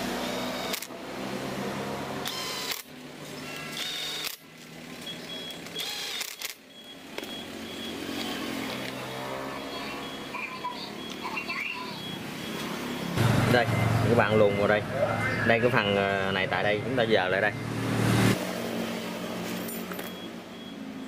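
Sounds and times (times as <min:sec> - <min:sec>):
cordless drill whirring: 0:00.2 - 0:00.9, 0:02.2 - 0:02.8, 0:03.6 - 0:04.4, 0:05.7 - 0:06.5.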